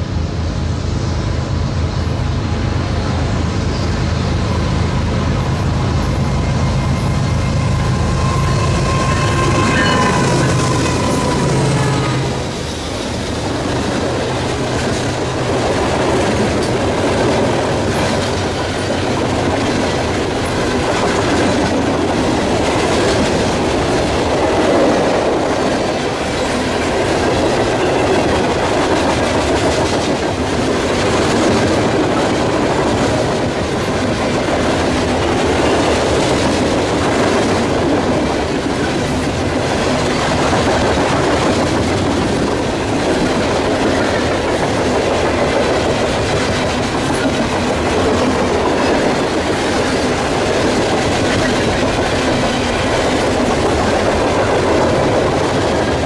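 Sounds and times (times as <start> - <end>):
train wheels rumbling on rail: 0.0 - 56.0
clickety-clack over rail joints: 1.3 - 56.0.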